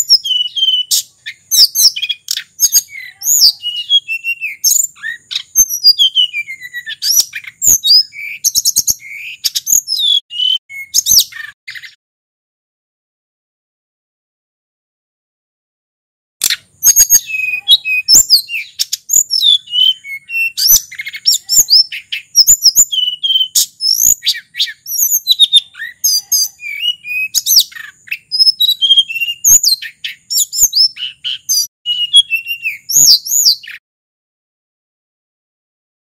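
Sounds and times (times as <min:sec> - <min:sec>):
bird singing high whistles: 0:00.0 - 0:12.0, 0:16.5 - 0:33.8
sharp bird clicks: 0:16.4 - 0:17.4.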